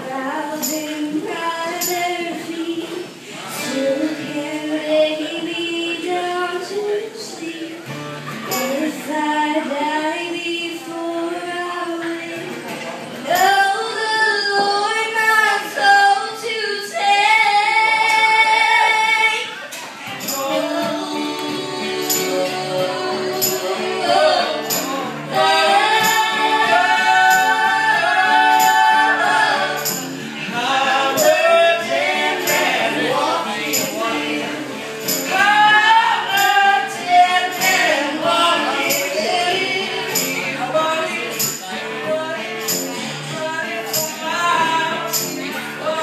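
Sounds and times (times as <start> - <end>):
acoustic guitar: 0.0 - 46.0
people singing in harmony: 13.3 - 46.0.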